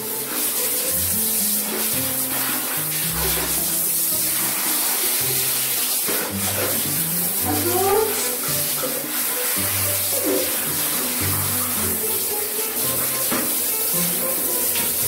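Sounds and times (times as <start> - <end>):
shower head spraying water: 0.0 - 15.0
comic music with bouncy bass: 6.4 - 8.7.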